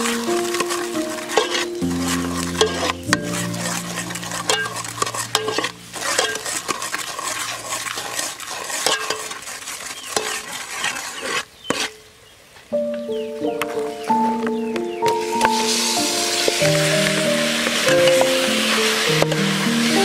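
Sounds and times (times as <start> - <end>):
garlic sizzling in sauce: 0.0 - 11.9, 15.1 - 20.0
metal ladle scraping pot: 0.0 - 12.0.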